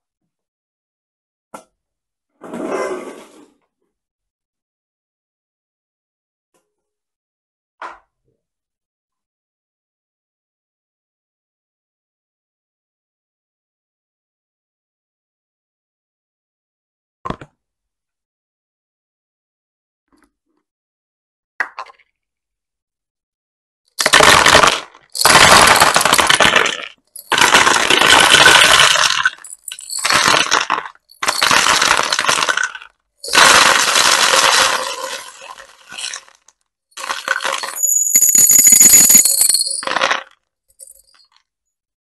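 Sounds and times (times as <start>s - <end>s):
plastic beads rattling into tray: 24.0s - 36.2s, 37.0s - 40.2s
glassy clink: 37.4s - 39.9s.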